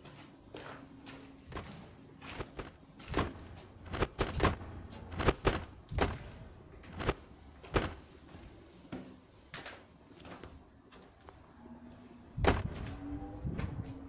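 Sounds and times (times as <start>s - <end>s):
footsteps crunching over rubble: 0.0s - 8.5s.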